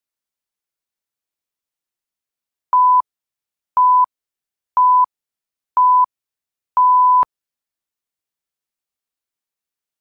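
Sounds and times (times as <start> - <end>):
electronic timer beeps: 2.8 - 3.0, 3.8 - 4.1, 4.8 - 5.1, 5.8 - 6.1, 6.8 - 7.3.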